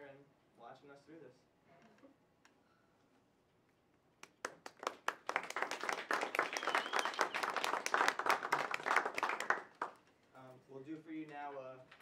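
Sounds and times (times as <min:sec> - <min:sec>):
audience applauding: 0:04.4 - 0:10.0.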